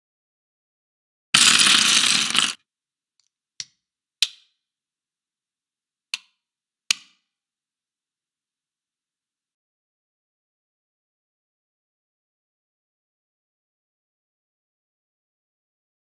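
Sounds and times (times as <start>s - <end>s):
plastic bricks clattering on wood: 1.4s - 2.6s.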